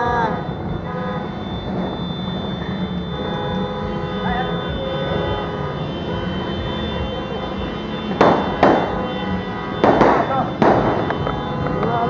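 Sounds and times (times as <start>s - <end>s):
sustained horn-like tones: 0.0s - 12.0s
background din: 4.5s - 12.0s
firecracker bangs: 8.0s - 12.0s.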